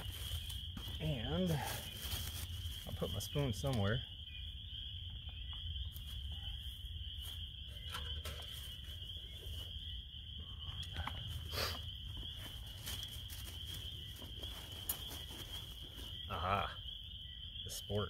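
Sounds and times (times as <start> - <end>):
rustling: 0.0 - 3.2, 11.2 - 16.3
frogs calling: 0.0 - 18.0.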